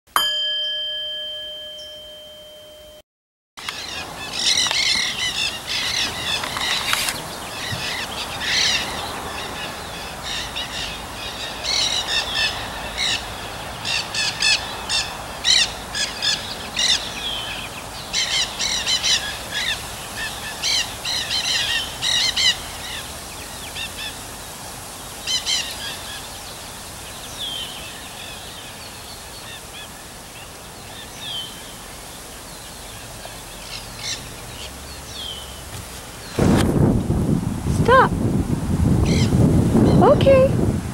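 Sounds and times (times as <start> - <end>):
parakeets calling: 3.6 - 24.6, 25.2 - 35.6, 39.0 - 40.2.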